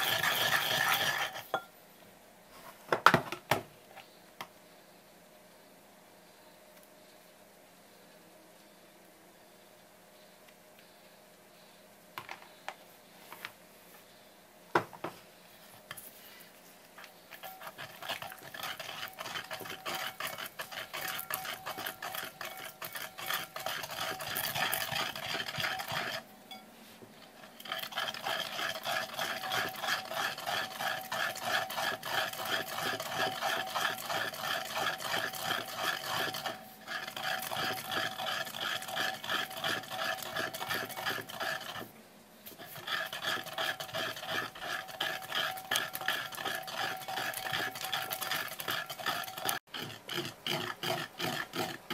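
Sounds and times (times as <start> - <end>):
pestle grinding in ceramic bowl: 0.0 - 1.6, 17.3 - 26.6, 27.4 - 41.9, 42.5 - 51.9.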